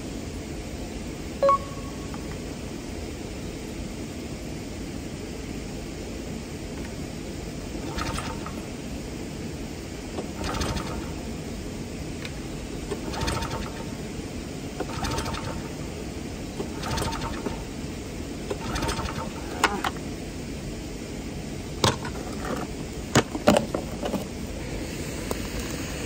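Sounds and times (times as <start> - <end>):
recoil starter cord rattle: 7.8 - 8.8, 10.1 - 11.4, 12.2 - 14.1, 14.8 - 16.0, 16.6 - 17.8, 18.5 - 20.0, 21.8 - 24.3
mower knocks and clatters: 21.8 - 24.3.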